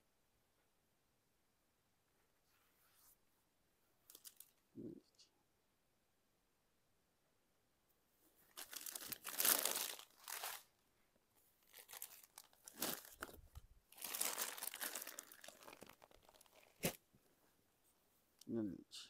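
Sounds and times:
fabric rustling and crinkling: 4.1s - 4.6s, 8.3s - 10.7s, 11.4s - 18.0s.

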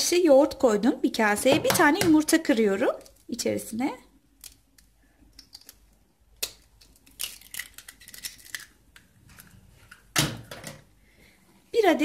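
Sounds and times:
eggshell clicks and crackles: 4.2s - 10.1s.

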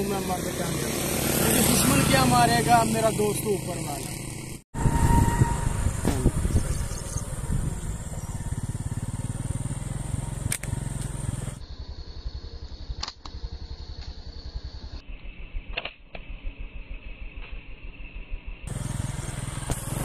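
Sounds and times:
small engine idling: 5.9s - 20.0s
sharp clicks: 10.4s - 11.2s, 12.9s - 13.4s, 15.6s - 16.3s.

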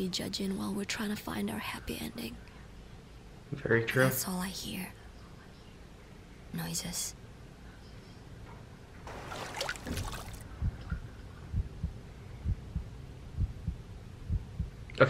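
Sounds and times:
low heartbeat-like thump: 9.9s - 14.8s.

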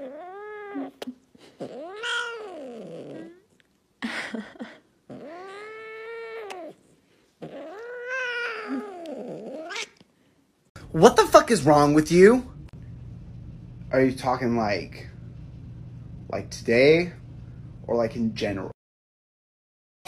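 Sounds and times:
cat meowing: 1.7s - 3.4s, 7.4s - 10.0s.

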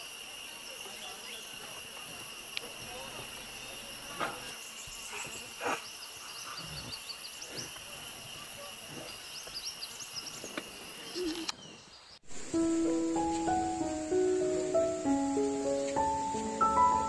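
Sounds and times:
insects shrilling: 12.3s - 17.0s
piano music: 12.3s - 17.0s.

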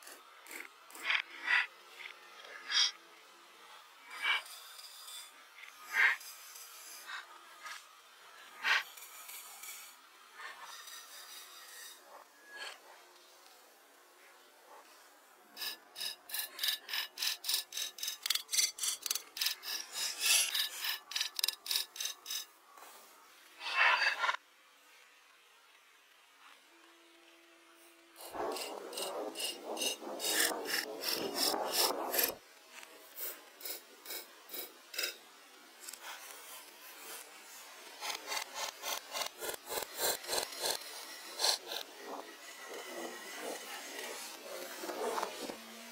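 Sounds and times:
hatchet shaving wooden log: 0.0s - 1.6s, 15.5s - 23.0s, 28.2s - 45.9s
knife shaving wood from log: 15.6s - 22.5s, 35.8s - 41.9s.

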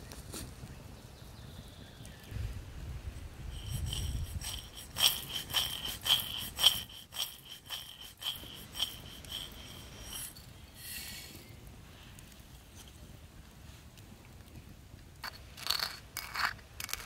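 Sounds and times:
nuts poured into stone mortar: 3.5s - 10.3s, 15.2s - 17.0s
nuts rattling in steel pan: 3.5s - 10.3s, 15.6s - 17.0s.

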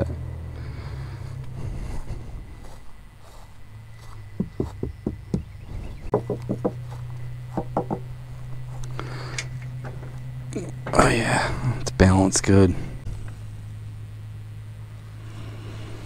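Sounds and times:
steady low hum: 0.0s - 16.0s
light knocks on aluminum boat: 7.5s - 8.1s.

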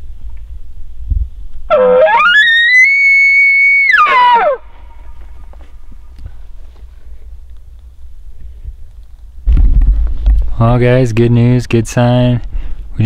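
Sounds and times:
elk bugling: 1.7s - 6.2s.

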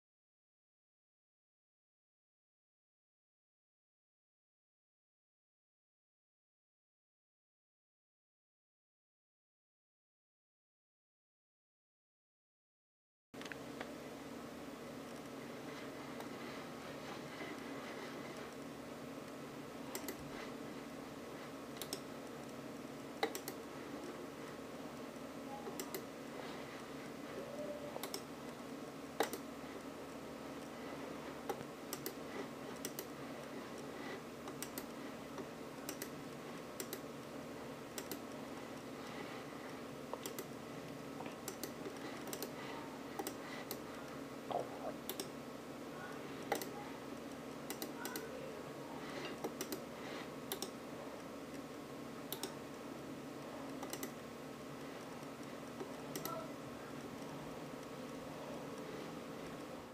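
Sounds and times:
steady hum: 13.4s - 59.9s.

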